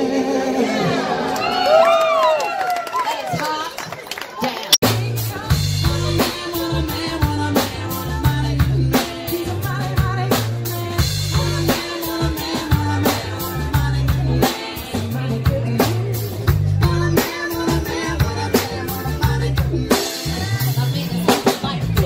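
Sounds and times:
drum kit beat: 4.8s - 22.0s
live rock band playing: 4.8s - 22.0s
woman singing lead: 4.8s - 22.0s.

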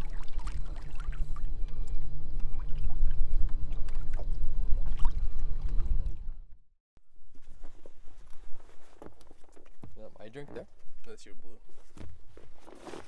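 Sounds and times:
water splashing against hull: 0.0s - 6.6s.

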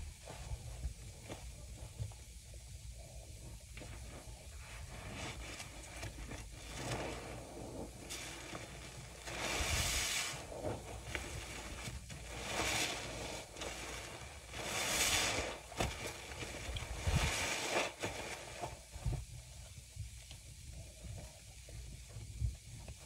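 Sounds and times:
foam fizzing and crackling: 0.0s - 23.0s
wet sponge squelching: 4.6s - 18.8s.

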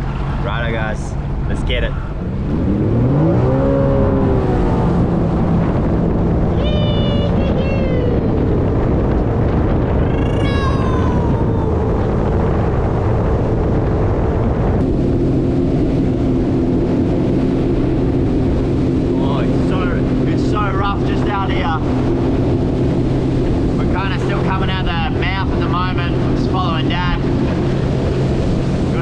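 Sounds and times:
jet ski engine running: 0.0s - 29.0s
rushing spray and wind: 0.0s - 29.0s
high falling voice calls: 10.0s - 12.1s.

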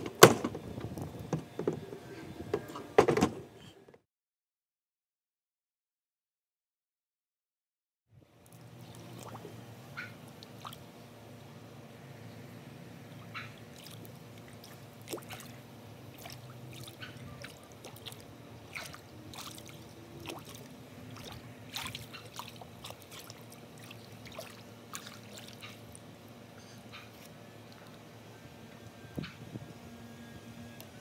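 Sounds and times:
low steady hum: 8.2s - 31.0s
pool water splashing: 8.2s - 31.0s.

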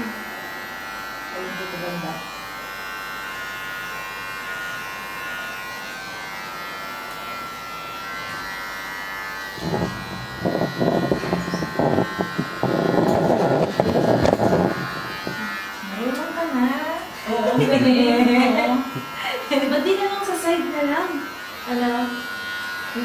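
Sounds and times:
electric hair clippers buzzing: 0.0s - 23.0s
loud uneven noise: 9.6s - 15.6s.

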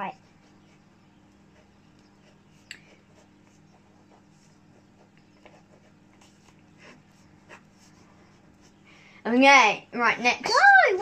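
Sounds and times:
faint steady hum: 0.0s - 11.0s
pen scratching on paper: 0.1s - 8.8s.

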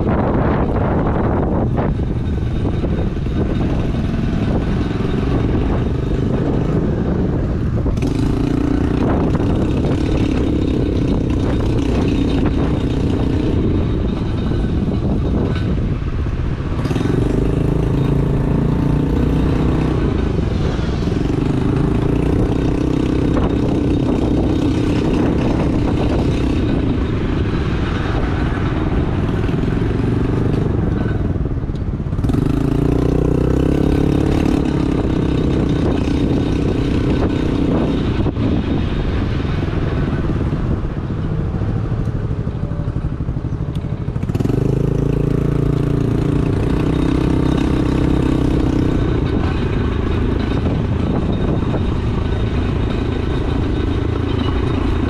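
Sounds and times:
road noise: 0.0s - 55.0s
small motorcycle engine revving: 2.7s - 15.4s, 16.8s - 27.1s, 32.1s - 38.3s, 42.5s - 55.0s.

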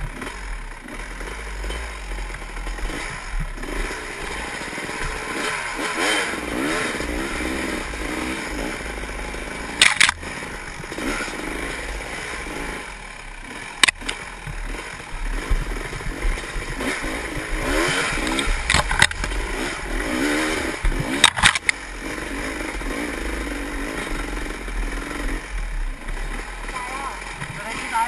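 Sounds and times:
dirt bike engine revving: 0.0s - 28.0s
sharp knocks from bike: 13.8s - 19.7s.

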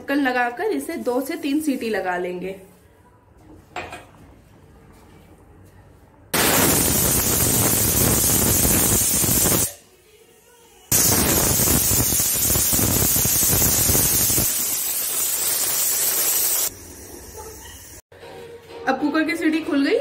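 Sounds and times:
pressure cooker whistling: 10.9s - 17.0s.

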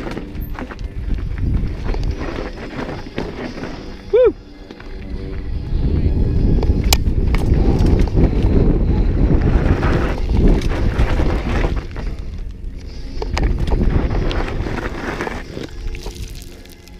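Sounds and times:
wind buffeting microphone: 0.0s - 2.6s, 5.0s - 16.4s
mountain bike rumbling on rocks: 0.0s - 4.1s, 4.7s - 16.9s.

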